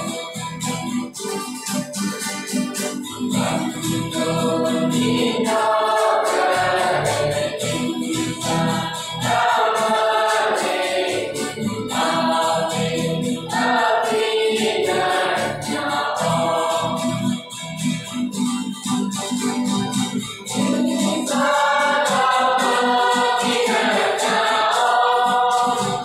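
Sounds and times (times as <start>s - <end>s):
strummed acoustic guitars: 0.0s - 26.0s
church choir singing gospel: 3.2s - 18.2s, 20.3s - 26.0s.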